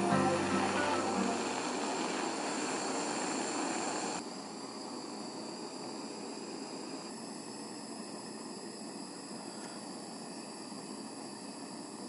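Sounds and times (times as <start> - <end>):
faint steady hiss: 0.0 - 4.2
gas torch flame hissing: 0.0 - 9.3.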